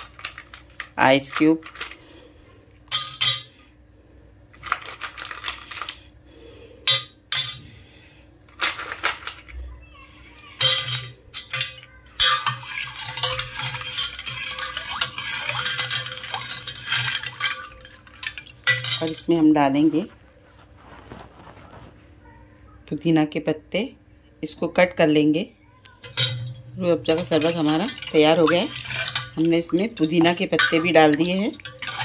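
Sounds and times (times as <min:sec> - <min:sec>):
ice cubes clinking in steel bowl: 0:00.0 - 0:02.3, 0:02.9 - 0:03.6, 0:04.6 - 0:06.0, 0:10.6 - 0:19.4, 0:26.0 - 0:32.0
spoon stirring and clattering: 0:10.6 - 0:19.4, 0:26.0 - 0:32.0.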